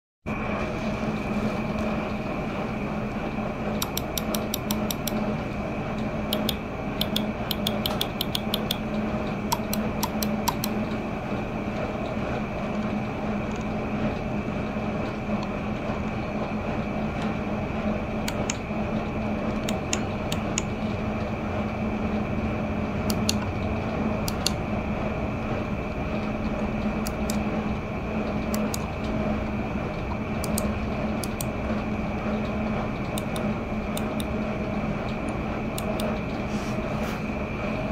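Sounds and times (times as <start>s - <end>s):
steady background hum: 0.3s - 37.9s
mouse clicking: 3.8s - 5.2s, 6.3s - 8.8s, 9.5s - 10.8s, 30.4s - 31.5s, 33.1s - 34.3s.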